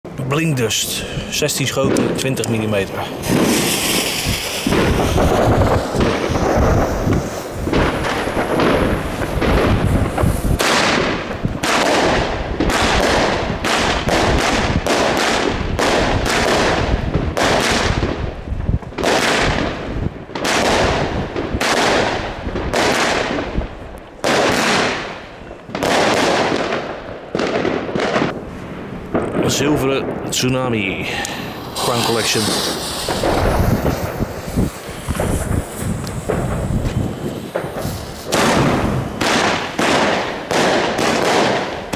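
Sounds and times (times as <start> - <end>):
firework shots and aerial bursts: 0.1 - 41.9
rushing noise: 31.3 - 38.3.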